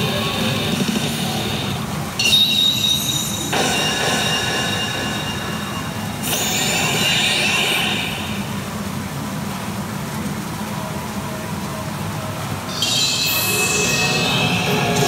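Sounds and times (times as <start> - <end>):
high ringing tones: 2.2 - 8.4, 12.7 - 15.0
pachinko machine din: 2.2 - 8.5, 12.8 - 15.0.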